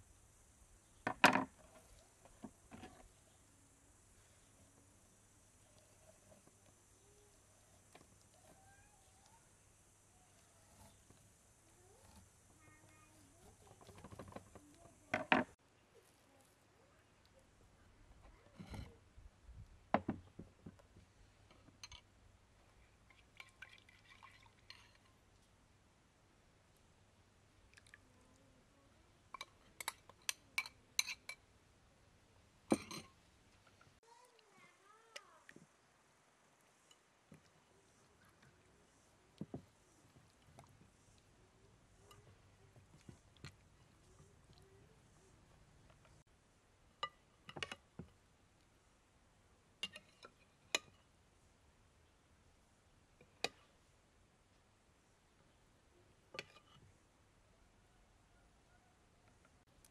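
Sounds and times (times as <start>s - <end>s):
glass or dishes clinking: 32.7s - 33.1s.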